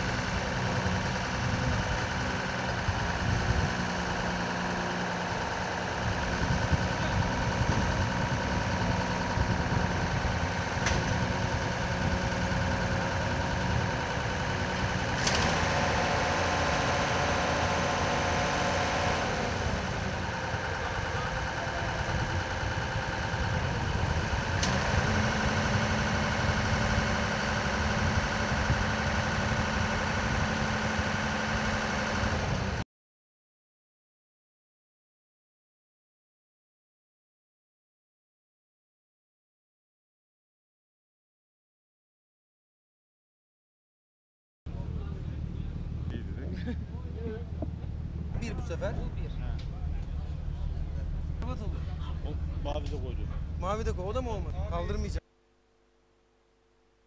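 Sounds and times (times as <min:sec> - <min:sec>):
crane machinery humming: 0:00.0 - 0:31.8, 0:44.7 - 0:57.0.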